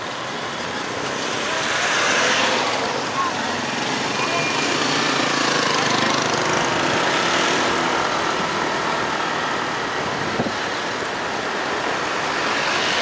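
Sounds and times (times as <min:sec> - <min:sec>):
road and wind noise: 0:00.0 - 0:13.0
traffic: 0:00.0 - 0:13.0
scooter engine running: 0:02.6 - 0:08.2.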